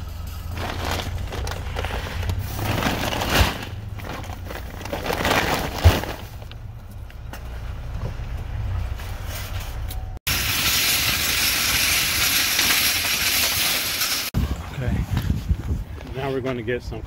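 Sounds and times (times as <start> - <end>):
plastic bags rustling: 0.5 - 6.6.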